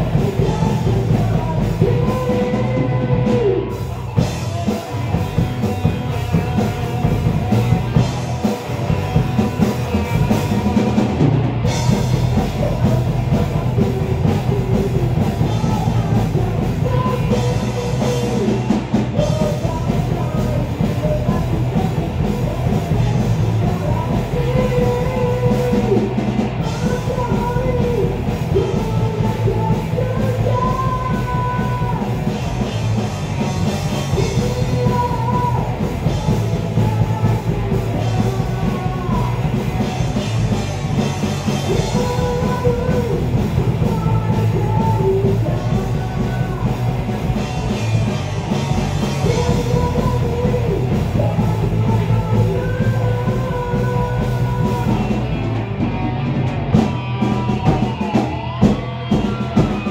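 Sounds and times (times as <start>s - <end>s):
live rock band playing: 0.0s - 59.9s
guitar phrase with bent notes: 54.0s - 59.9s.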